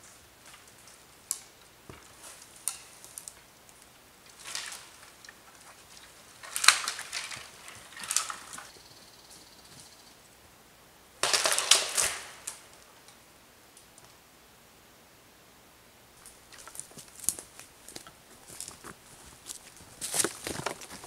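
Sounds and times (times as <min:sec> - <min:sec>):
dry wood crackling and snapping: 0:00.0 - 0:08.8, 0:11.2 - 0:13.2, 0:16.2 - 0:21.0.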